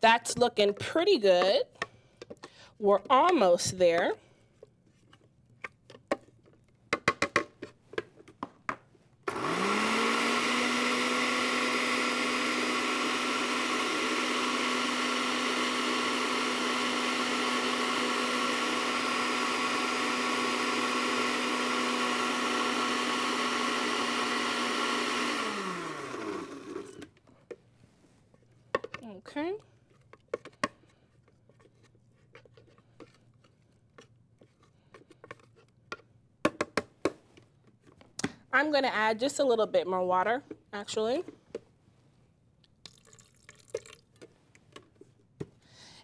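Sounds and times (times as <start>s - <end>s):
food processor motor whine: 9.3s - 27.1s.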